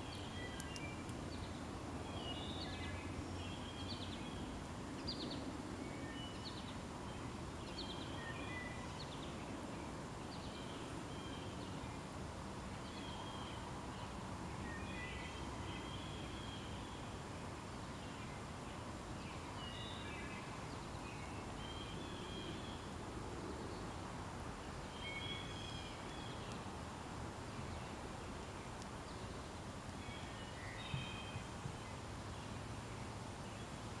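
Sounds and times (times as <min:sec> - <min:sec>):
small bird chirping: 0:00.0 - 0:09.4
outdoor background noise: 0:00.0 - 0:34.0
light ticks: 0:00.6 - 0:01.2, 0:26.5 - 0:26.7, 0:28.8 - 0:29.0.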